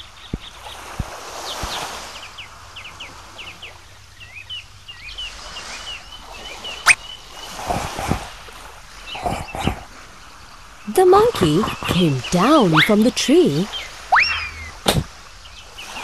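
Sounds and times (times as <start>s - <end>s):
birds chirping: 8.9s - 16.0s
cartoon whistle sound effect: 14.1s - 15.0s
short low sounds: 14.1s - 15.1s.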